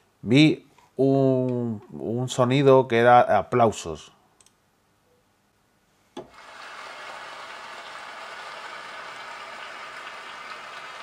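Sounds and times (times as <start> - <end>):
synthetic applause: 7.0 - 11.0.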